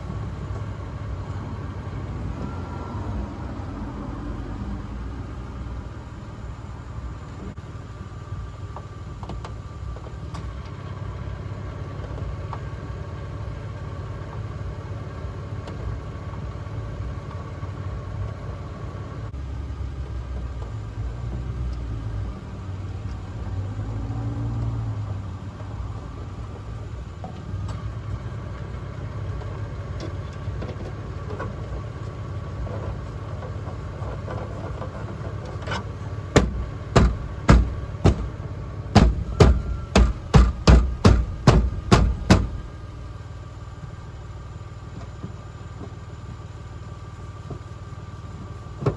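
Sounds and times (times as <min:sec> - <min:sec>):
car engine idling: 0:00.0 - 0:48.9
sharp knocks: 0:36.3 - 0:42.6.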